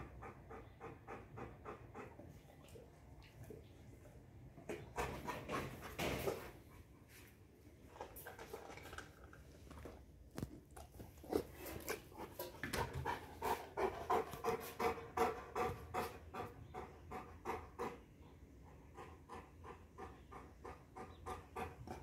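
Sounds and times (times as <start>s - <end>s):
dog panting: 0.0s - 2.8s, 11.3s - 22.0s.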